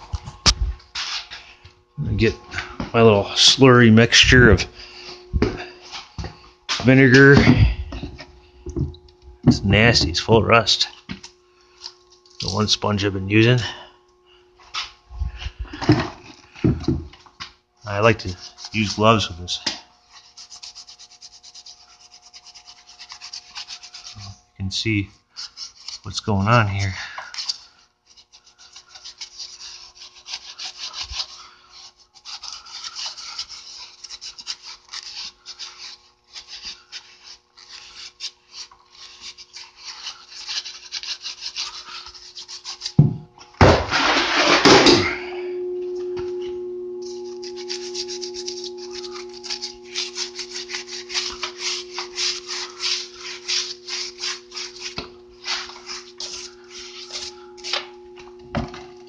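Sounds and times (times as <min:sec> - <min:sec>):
steady low hum: 0:00.0 - 0:59.0
pad scrubbing rusty metal: 0:20.1 - 0:24.4, 0:25.3 - 0:43.0, 0:46.3 - 0:59.0.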